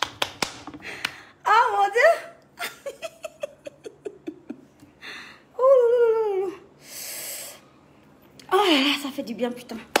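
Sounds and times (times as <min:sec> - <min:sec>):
woman giggling: 0:02.6 - 0:04.9.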